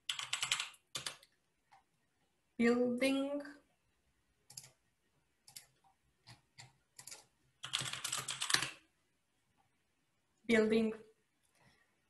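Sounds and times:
typing on keyboard: 0.0s - 1.8s, 4.5s - 4.8s, 5.4s - 8.8s.

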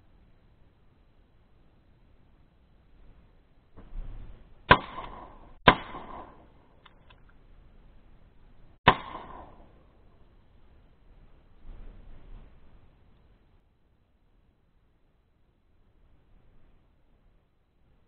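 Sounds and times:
rustle: 0.0s - 18.0s
shotgun shots with echo: 4.7s - 6.6s, 8.8s - 9.8s.

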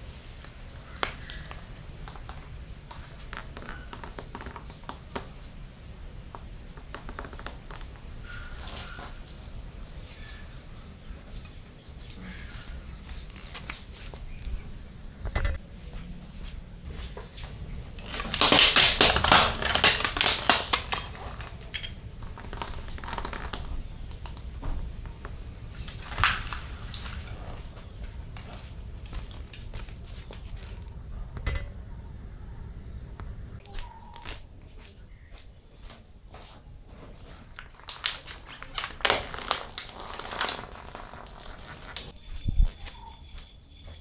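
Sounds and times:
light irregular crackles: 0.0s - 10.4s, 16.5s - 31.8s, 33.1s - 43.0s
tyre crushing metal and plastic: 18.0s - 21.6s
low steady rumble: 20.8s - 33.7s.

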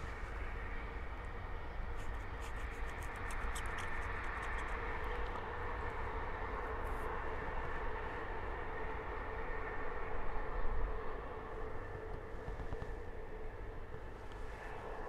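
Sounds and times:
wind buffeting microphone: 0.0s - 15.0s
faint high clicks: 2.0s - 5.4s.

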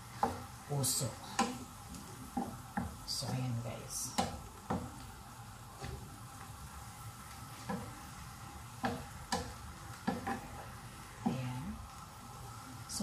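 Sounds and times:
faint sizzle of bubbling liquid: 0.0s - 13.0s
spatula stirring in frying pan: 0.0s - 13.0s
spatula knocking against pan: 2.4s - 3.0s, 4.2s - 4.9s, 8.8s - 10.5s.

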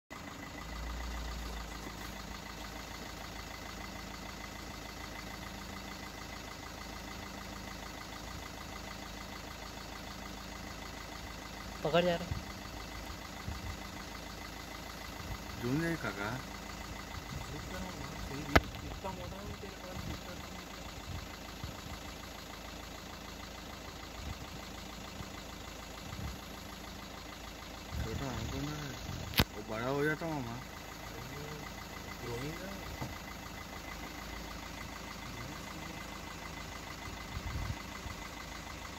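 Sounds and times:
engine idling hum: 0.1s - 38.9s
deep rumble: 15.1s - 22.1s.

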